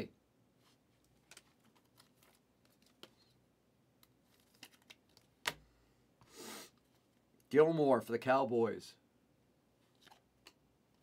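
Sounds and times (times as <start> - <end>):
trading cards being handled: 0.6 - 3.4, 4.0 - 5.6, 9.9 - 10.6.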